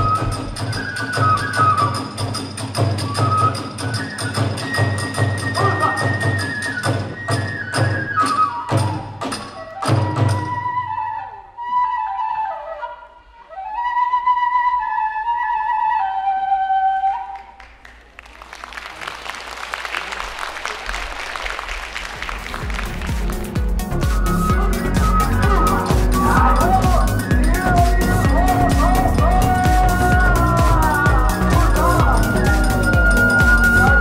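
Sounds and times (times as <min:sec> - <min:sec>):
bamboo flute melody: 0:00.0 - 0:17.9, 0:22.2 - 0:34.0
drum strikes: 0:22.2 - 0:34.0.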